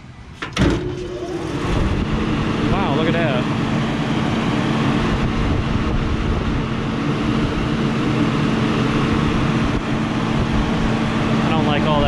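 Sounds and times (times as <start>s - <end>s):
exhaust fan motor hum: 0.0s - 12.0s.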